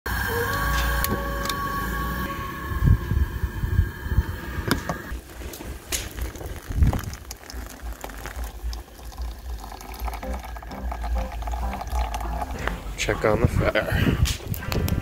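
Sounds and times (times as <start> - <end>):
coffee grounds bubbling: 5.1 - 12.8
water pouring and splashing: 5.1 - 13.0.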